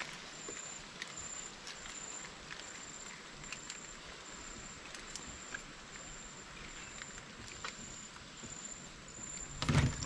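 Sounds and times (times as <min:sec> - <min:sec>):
light clicks and rustles: 0:00.0 - 0:04.0, 0:04.8 - 0:08.6
background hiss: 0:00.0 - 0:10.0.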